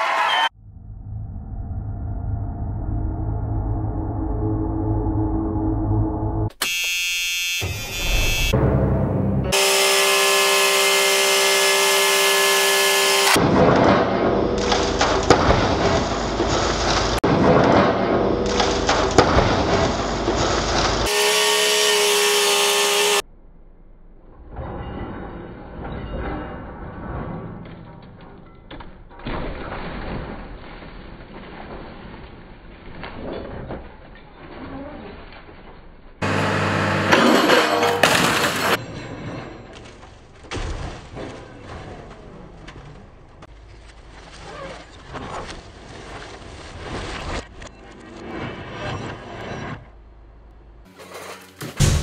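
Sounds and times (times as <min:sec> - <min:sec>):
machine noise: 0:01.8 - 0:17.2, 0:36.2 - 0:38.8
metal and glass crunching: 0:28.4 - 0:47.9
machine engine hum: 0:36.2 - 0:38.8.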